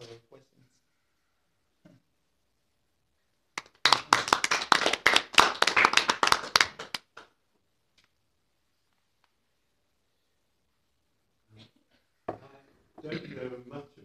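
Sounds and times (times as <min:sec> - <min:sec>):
audience clapping: 0:03.6 - 0:07.4.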